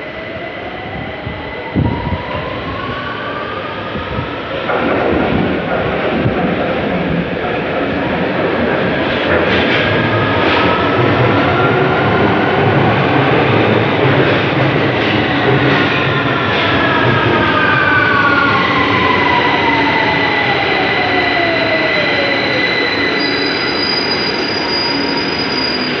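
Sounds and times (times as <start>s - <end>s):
train wheels rumbling on rail: 0.1s - 26.0s
high-pitched squeal: 16.0s - 26.0s.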